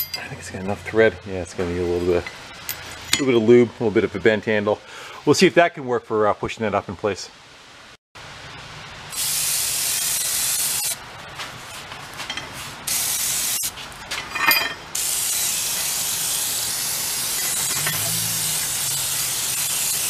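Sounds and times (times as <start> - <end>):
aerosol spray hissing: 9.2 - 11.0, 12.9 - 13.7, 15.0 - 20.0.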